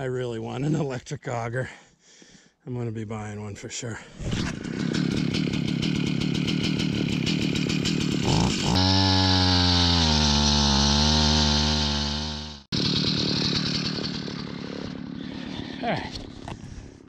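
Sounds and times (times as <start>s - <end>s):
ice auger engine running: 4.3s - 17.0s.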